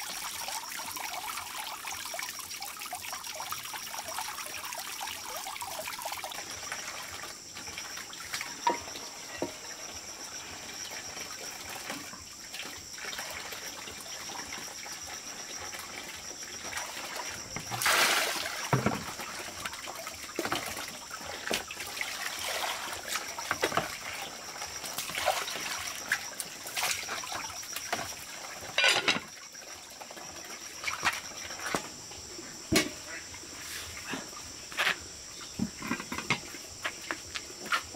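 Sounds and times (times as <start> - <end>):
water poured from a dipper: 0.0 - 8.9
water splashing and trickling: 0.0 - 37.9.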